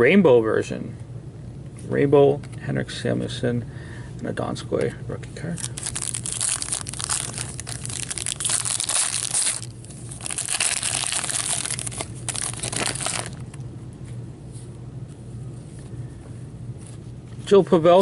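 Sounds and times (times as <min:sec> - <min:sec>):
plastic wrapper tearing and crinkling: 0:05.6 - 0:13.6.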